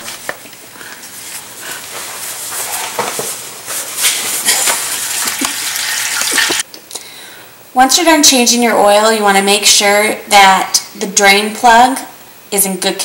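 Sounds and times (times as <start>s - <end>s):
towel rubbing: 1.0s - 6.6s
oil draining into pan: 4.8s - 6.6s.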